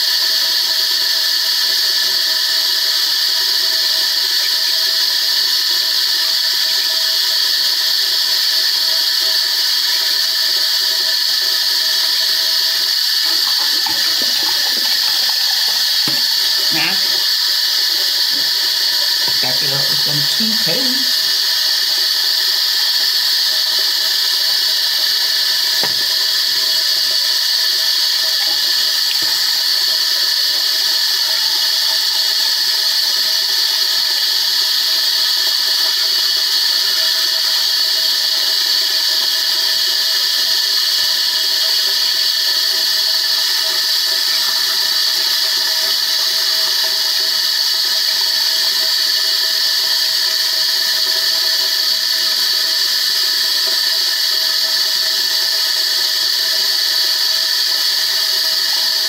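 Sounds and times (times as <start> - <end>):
tap running into sink: 13.2 - 21.2, 25.7 - 27.2, 28.2 - 29.7.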